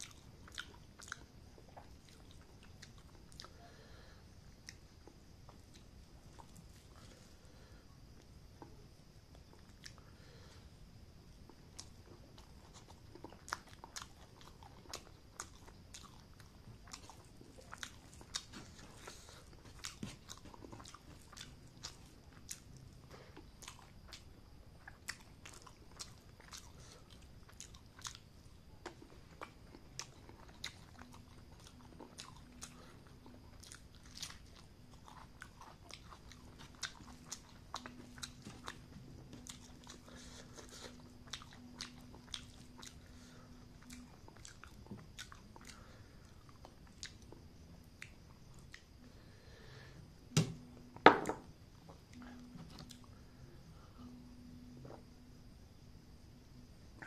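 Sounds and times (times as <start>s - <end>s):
person chewing: 0.0s - 3.6s, 11.5s - 49.0s
faint low hum: 0.0s - 57.0s.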